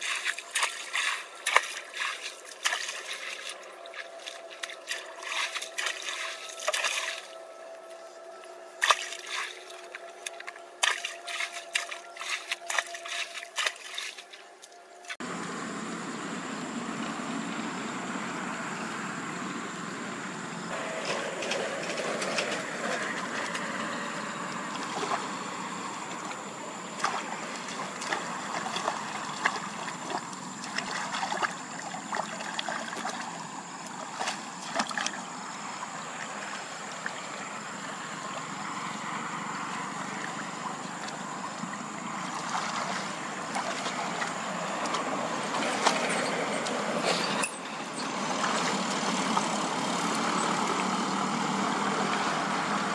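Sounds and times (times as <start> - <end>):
water splashing: 0.0 - 8.0, 8.7 - 15.2, 26.2 - 52.3.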